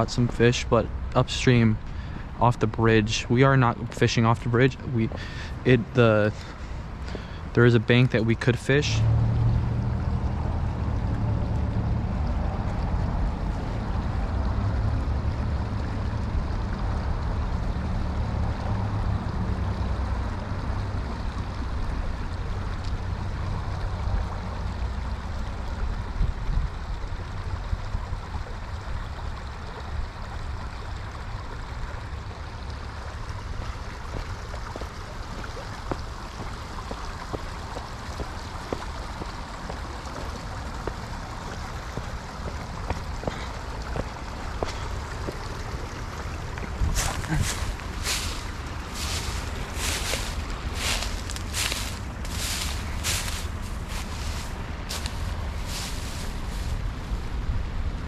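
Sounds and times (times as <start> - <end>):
creek water flowing: 0.0 - 58.0
light ticks: 22.8 - 23.0.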